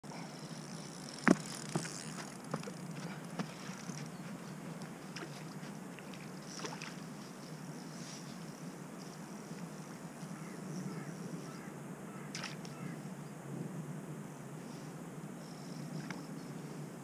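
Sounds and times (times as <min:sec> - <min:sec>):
low outdoor background: 0:00.0 - 0:17.0.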